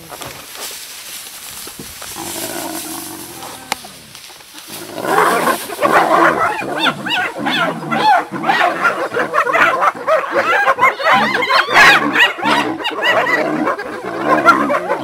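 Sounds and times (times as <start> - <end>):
low growl: 2.2 - 8.8
yelping cackling calls: 4.7 - 15.0.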